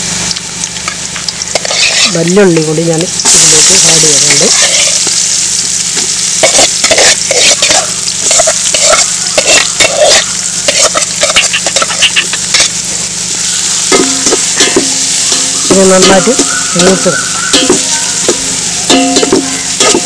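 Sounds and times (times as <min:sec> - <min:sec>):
food sizzling in oil: 0:00.0 - 0:20.0
metal spoon scraping pot: 0:01.5 - 0:02.4, 0:06.4 - 0:12.8.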